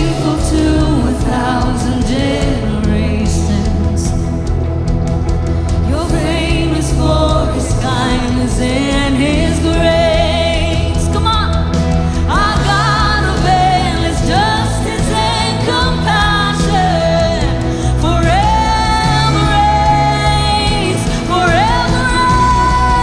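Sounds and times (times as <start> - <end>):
people singing together: 0.0 - 4.6, 5.7 - 23.0
acoustic guitar: 0.0 - 23.0
keyboard: 0.0 - 23.0
sustained low notes: 0.0 - 23.0.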